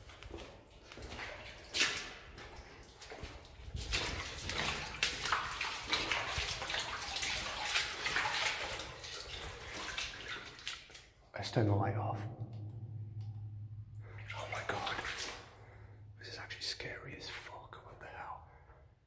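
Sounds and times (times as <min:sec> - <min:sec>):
footsteps splashing through water: 0:00.0 - 0:11.3, 0:14.1 - 0:15.8.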